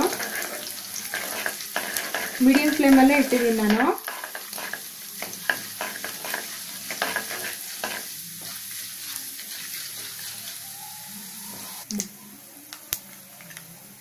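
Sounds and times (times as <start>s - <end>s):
spatula scraping a pan: 0.0s - 10.8s
seeds sizzling in hot oil: 0.0s - 12.0s.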